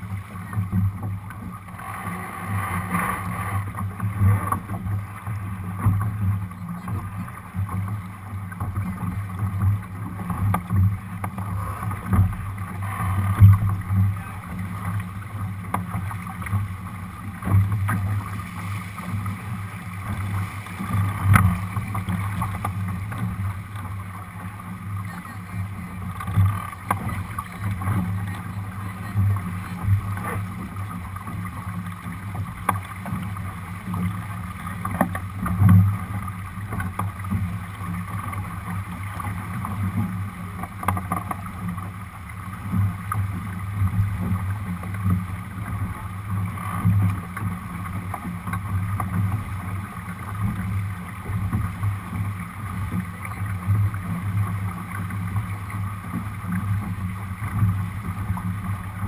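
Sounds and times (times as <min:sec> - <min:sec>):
boat knocks: 0:00.0 - 0:59.0
water rushing along a hull: 0:00.0 - 0:59.0.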